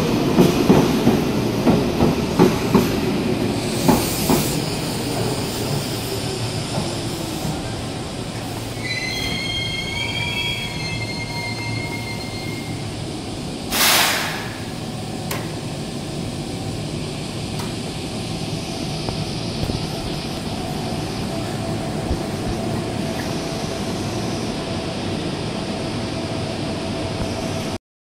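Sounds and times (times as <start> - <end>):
train hum and rumble: 0.0 - 27.8
train brakes squealing: 3.5 - 7.8, 8.4 - 13.1
air hiss: 3.5 - 8.8, 13.7 - 14.8.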